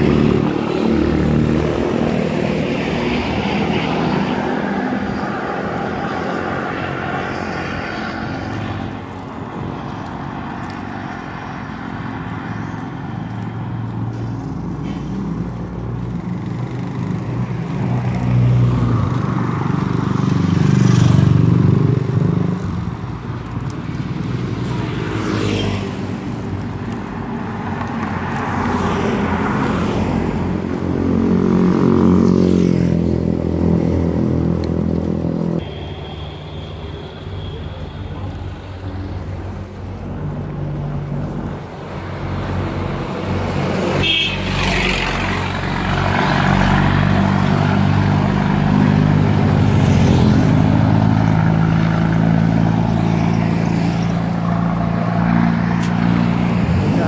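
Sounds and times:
vehicles passing by: 0:00.0 - 0:57.0.

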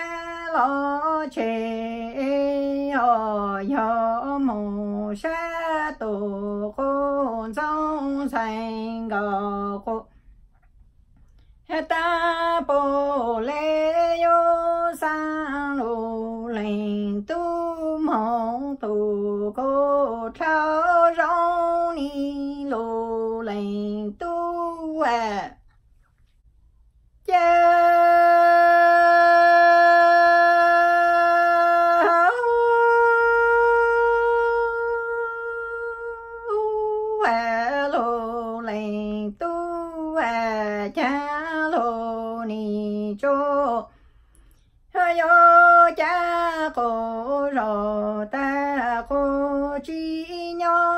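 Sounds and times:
woman chanting unaccompanied: 0:00.0 - 0:10.1, 0:11.6 - 0:25.6, 0:27.2 - 0:43.9, 0:44.9 - 0:50.9
breath: 0:43.9 - 0:44.8.

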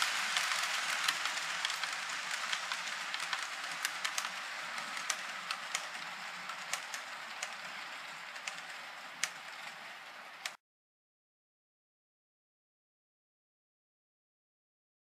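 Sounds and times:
model train whirring on track: 0:00.0 - 0:10.6
sharp track clicks: 0:00.0 - 0:10.6.

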